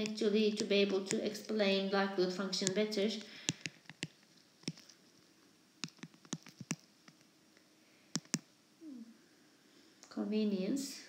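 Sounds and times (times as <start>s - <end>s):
light clicks and taps: 0.0s - 1.6s, 2.6s - 5.0s, 5.8s - 7.3s, 8.1s - 8.5s.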